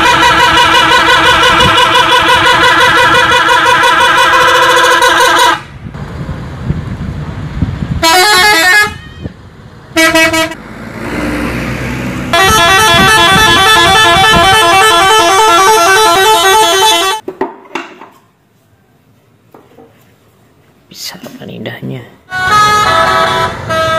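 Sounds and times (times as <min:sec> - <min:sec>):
musical bus horns: 0:00.0 - 0:05.9, 0:07.8 - 0:17.2, 0:22.3 - 0:23.9
engine and road rumble: 0:00.0 - 0:23.9.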